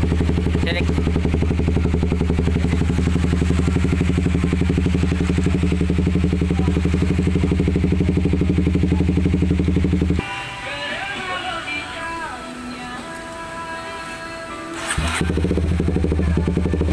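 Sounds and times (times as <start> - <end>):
motorcycle engine idling: 0.0 - 12.6, 14.8 - 16.9
music: 10.2 - 16.9.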